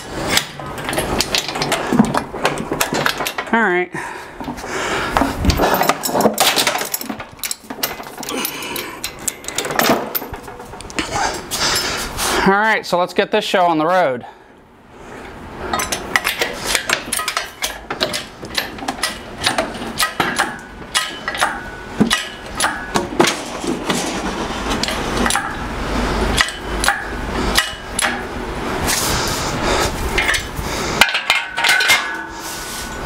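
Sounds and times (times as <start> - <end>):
lifting chains rattling: 5.4 - 11.9, 15.7 - 23.0
hydraulic crane pump clanking: 15.7 - 29.1, 29.8 - 33.0.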